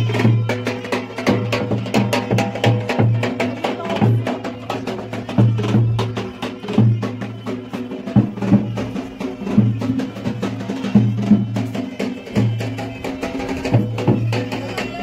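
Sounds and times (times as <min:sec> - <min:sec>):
music with strong drum beat: 0:00.0 - 0:15.0.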